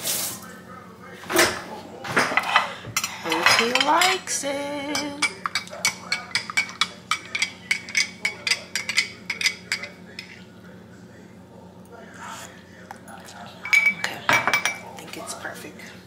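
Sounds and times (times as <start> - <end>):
stirrer clinking in glass mug: 3.0 - 4.2, 4.9 - 10.4.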